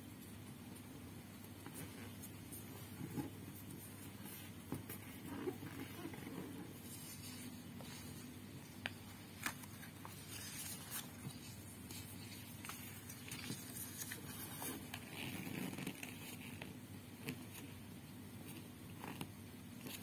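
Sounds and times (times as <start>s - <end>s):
paper crinkling: 1.6s - 17.6s
paper rustling: 1.6s - 17.6s.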